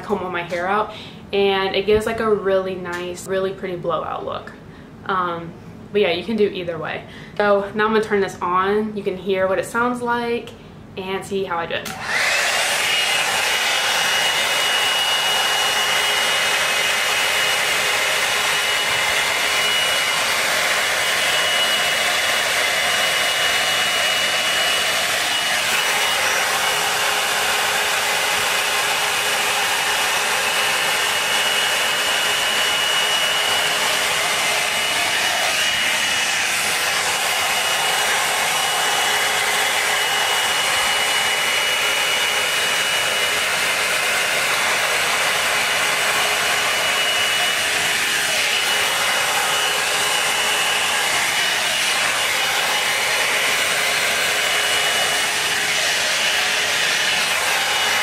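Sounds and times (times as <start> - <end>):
blow-dryer brush running: 11.8 - 58.0.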